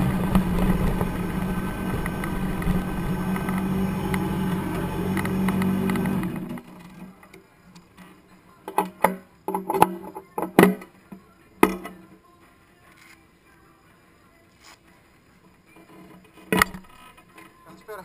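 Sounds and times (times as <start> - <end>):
motorcycle engine idling: 0.0 - 6.7
sharp clicks and knocks: 0.0 - 7.0.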